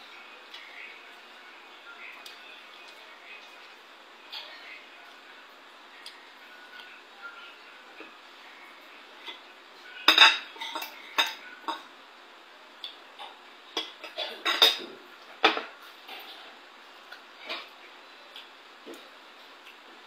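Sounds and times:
cutlery clinking on a plate: 10.1s - 11.8s, 13.2s - 16.4s.

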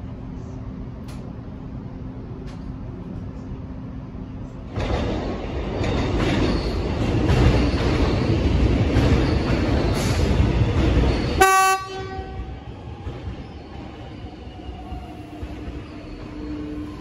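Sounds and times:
electric train rumbling: 0.0s - 17.0s
train horn blast: 11.4s - 12.5s.

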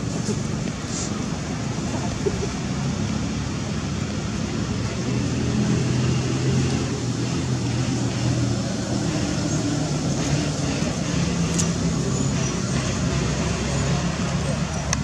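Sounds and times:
broad hiss: 0.0s - 1.7s
vehicle engine hum: 0.0s - 15.0s.

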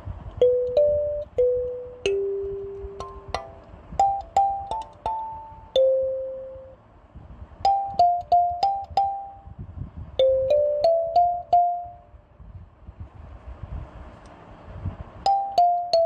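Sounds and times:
slow piano-like melody: 0.4s - 6.8s.

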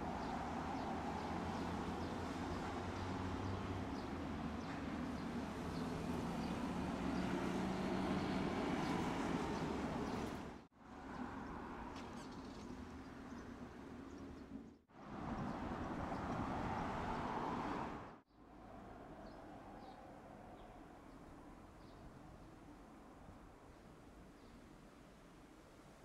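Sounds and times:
bus engine passing: 0.0s - 10.7s, 15.0s - 18.2s
road traffic: 0.0s - 24.3s.

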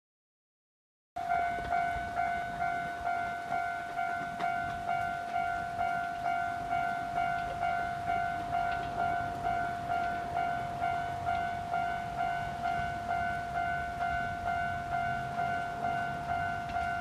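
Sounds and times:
level crossing bell ringing: 1.2s - 17.0s.

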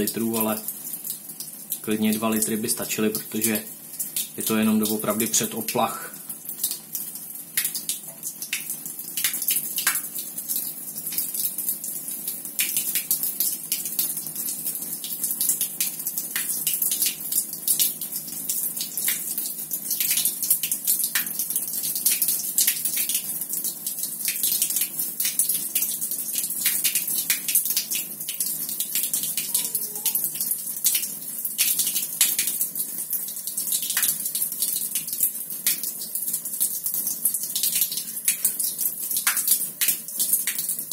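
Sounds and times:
water splashing onto tiled floor: 6.2s - 40.9s.

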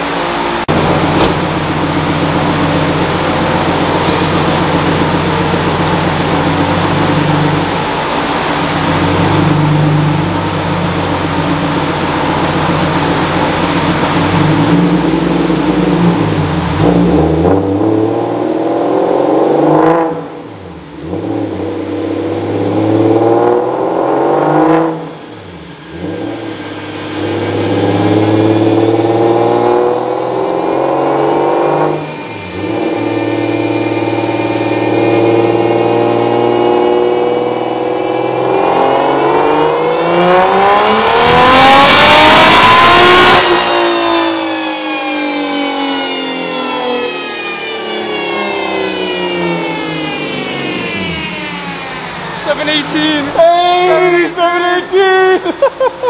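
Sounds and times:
car engine revving: 0.0s - 56.0s
steady whir: 19.9s - 54.4s.

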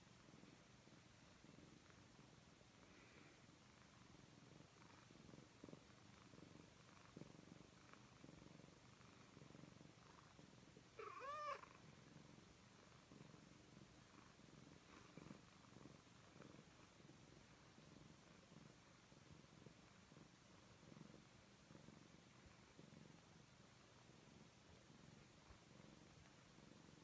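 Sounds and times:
cat purring: 0.0s - 27.0s
cat meowing: 11.0s - 11.6s.

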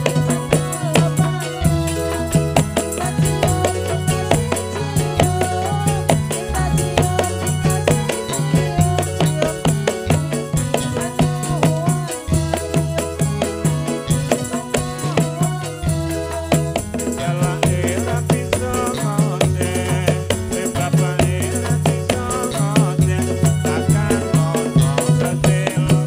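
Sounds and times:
melody: 0.0s - 17.4s
hand drums: 0.0s - 26.0s
jingling rattle percussion: 0.0s - 26.0s.

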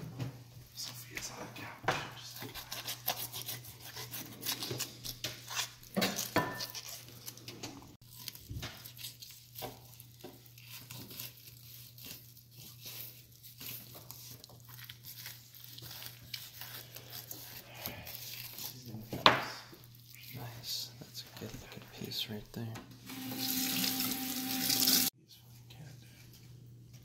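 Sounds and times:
knife cutting fish: 2.4s - 7.1s.

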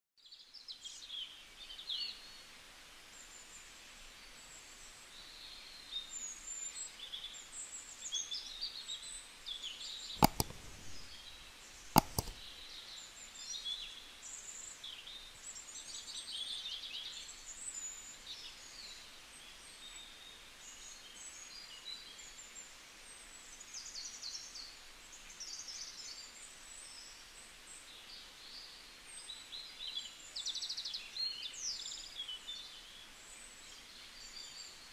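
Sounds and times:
sharp clicks: 10.2s - 11.2s, 11.8s - 12.6s.

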